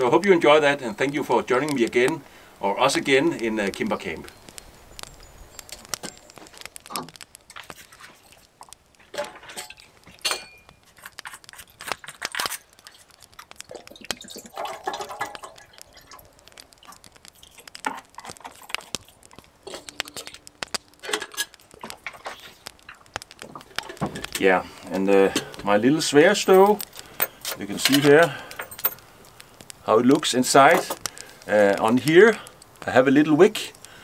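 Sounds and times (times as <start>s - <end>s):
metal cookware clinking: 9.5s - 10.7s.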